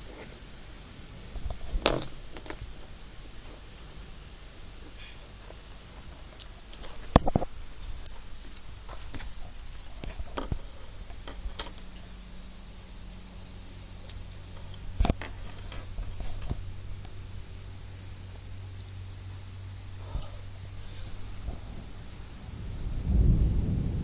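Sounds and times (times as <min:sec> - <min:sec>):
low steady hum: 0:00.0 - 0:24.0
microphone handling clicks and knocks: 0:06.8 - 0:12.0, 0:14.6 - 0:16.6.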